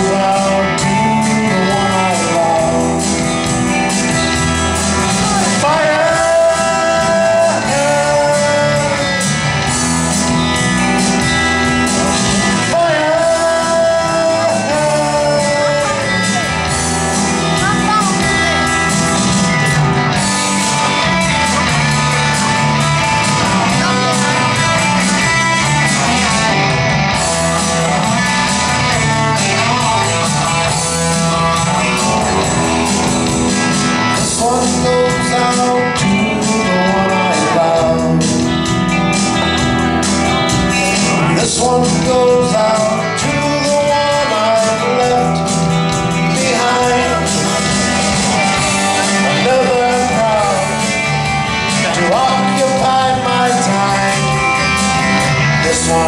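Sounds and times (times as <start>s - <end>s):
man singing into a microphone: 0.0s - 3.3s, 4.8s - 9.5s, 11.9s - 16.8s, 23.2s - 32.6s, 34.1s - 39.4s, 41.0s - 56.0s
live band with electric guitars: 0.0s - 56.0s.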